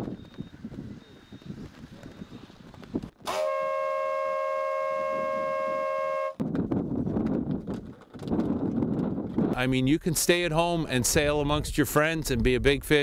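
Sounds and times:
horn blast: 3.2s - 6.4s.

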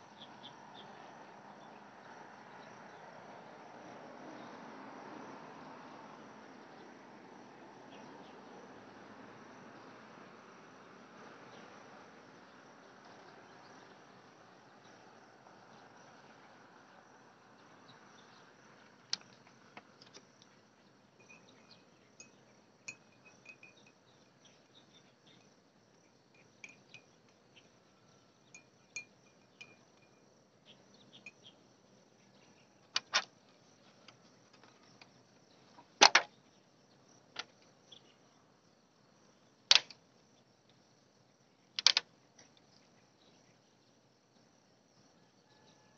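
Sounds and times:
insects trilling: 0.0s - 45.9s
sharp clicks: 39.7s - 40.0s, 41.8s - 42.1s.

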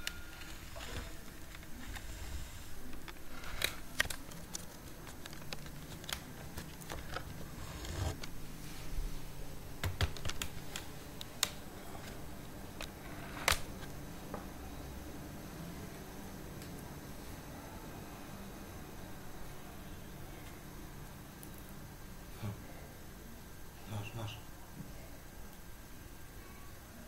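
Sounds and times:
hands tapping a laptop: 9.8s - 11.6s.

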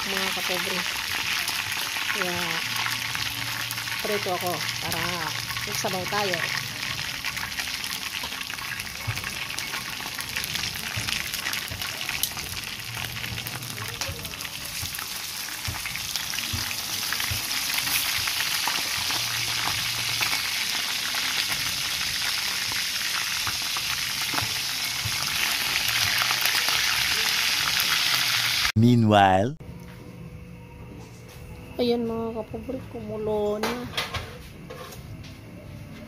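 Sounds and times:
chicken frying in hot oil: 0.0s - 28.7s.

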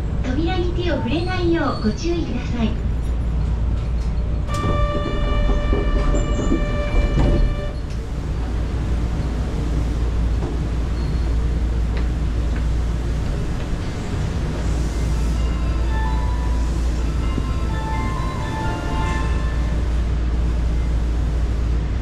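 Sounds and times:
subway train rumble and hum: 0.0s - 22.0s
steady high tone: 15.2s - 20.1s.

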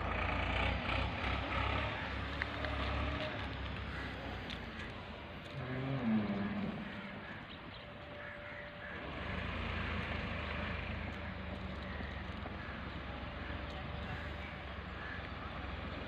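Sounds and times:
tractor engine rumble: 0.0s - 16.0s.

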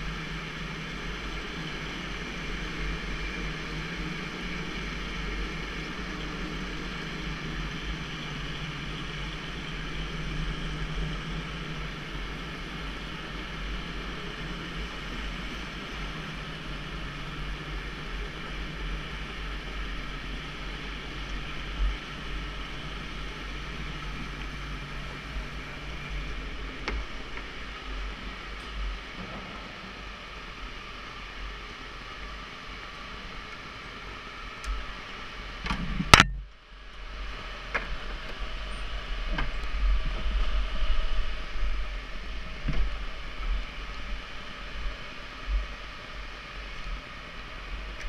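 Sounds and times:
electric go-kart motor whine: 0.0s - 35.3s.

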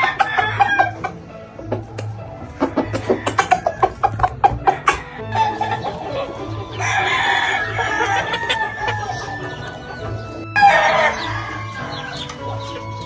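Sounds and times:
rooster crowing: 6.6s - 13.0s.

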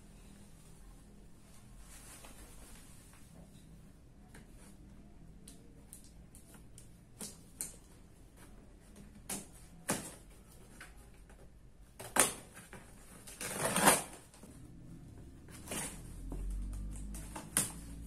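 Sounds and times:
packing tape tearing: 13.2s - 14.2s.

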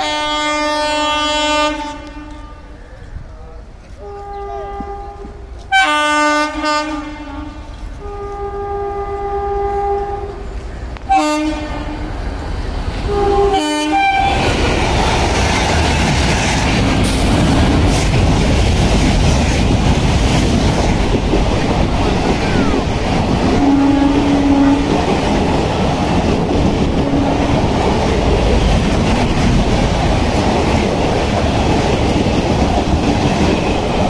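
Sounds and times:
locomotive horn blasts: 0.0s - 2.7s, 4.0s - 10.5s, 11.1s - 12.2s, 13.1s - 14.5s, 23.5s - 25.1s, 27.0s - 27.6s
train wheels clattering on rails: 14.2s - 34.0s.

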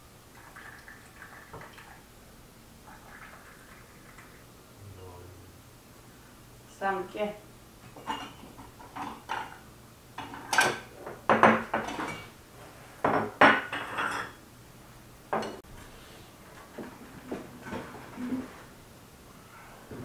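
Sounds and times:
china plates clinking on table: 13.1s - 14.4s.

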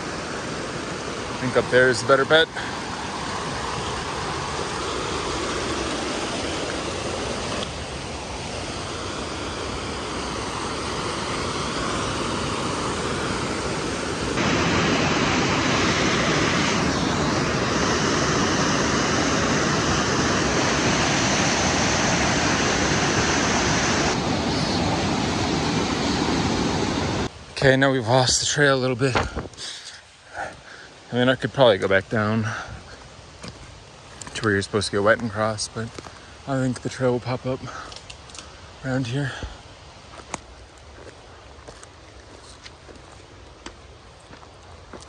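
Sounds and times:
creek rushing over rocks: 0.0s - 29.5s.

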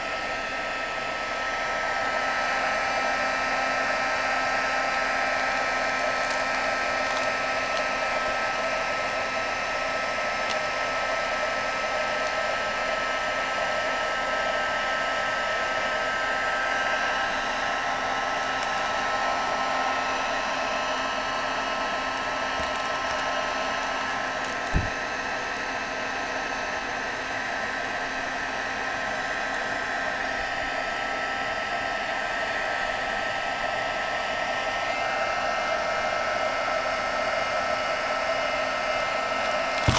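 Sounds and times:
heat gun whining: 0.0s - 39.9s
short knock: 24.7s - 24.9s.

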